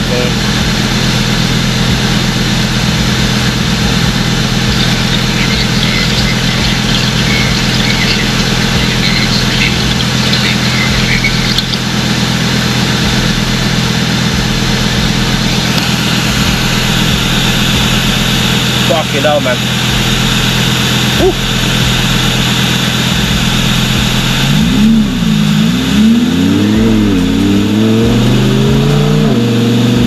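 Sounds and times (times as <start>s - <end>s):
car engine idling: 0.0s - 30.0s.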